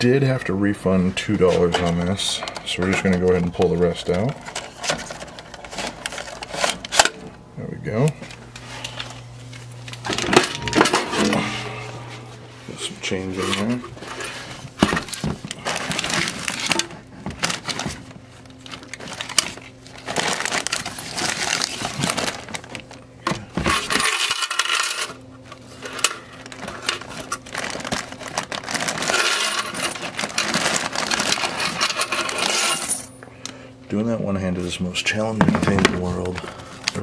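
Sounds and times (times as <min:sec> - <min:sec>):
steady low hum: 0:00.0 - 0:37.0
bag and bills rustling: 0:08.6 - 0:22.9.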